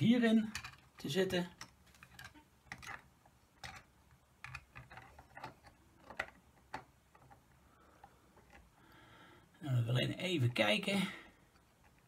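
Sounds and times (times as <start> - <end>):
plastic parts clicking and tapping: 0.1 - 8.8, 11.4 - 12.0.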